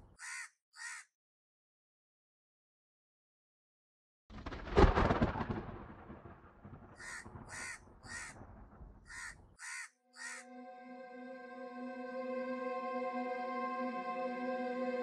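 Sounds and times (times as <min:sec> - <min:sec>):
crow cawing: 0:00.2 - 0:01.1, 0:07.0 - 0:08.4, 0:09.1 - 0:10.6
low boom with rumble: 0:04.4 - 0:09.1.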